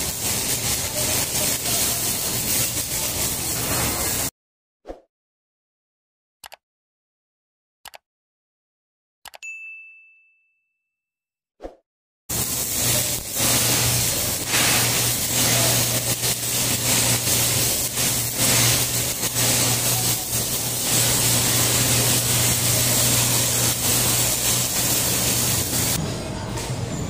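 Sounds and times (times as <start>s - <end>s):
welding arc crackling: 0.0s - 4.3s, 12.3s - 26.0s.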